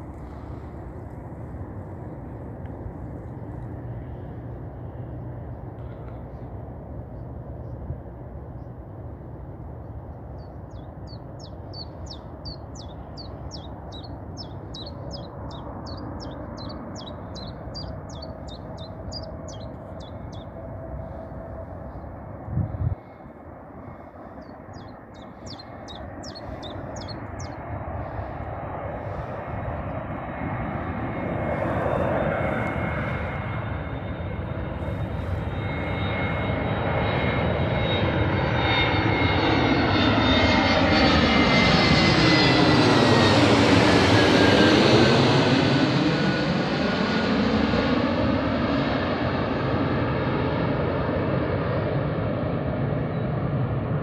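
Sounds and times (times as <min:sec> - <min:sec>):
jet airliner passing overhead: 0:00.0 - 0:54.0
engine whine dropping in pitch: 0:10.7 - 0:22.2, 0:24.4 - 0:48.5.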